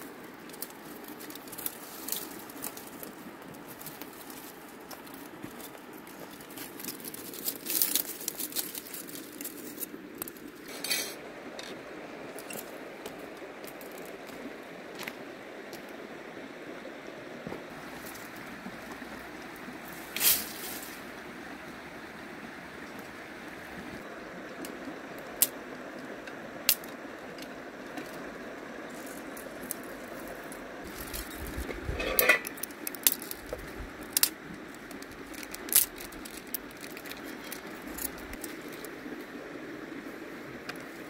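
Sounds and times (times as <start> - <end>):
river water flowing over stones: 0.0 - 41.0
dry twigs snapping: 0.3 - 10.6, 28.9 - 38.9.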